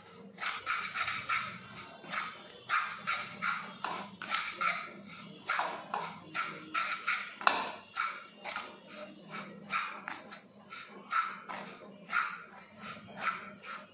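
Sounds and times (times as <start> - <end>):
spatula scraping frying pan: 0.0 - 13.9.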